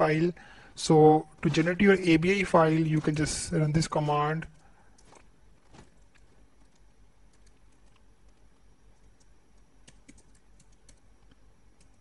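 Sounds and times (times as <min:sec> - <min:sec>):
computer keyboard typing: 0:06.0 - 0:12.0.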